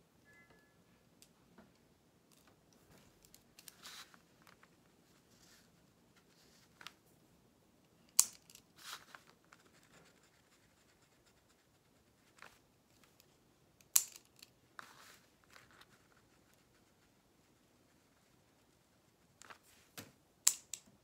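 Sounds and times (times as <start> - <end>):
pen clicks: 8.1 - 9.8, 13.1 - 14.5, 20.5 - 20.9.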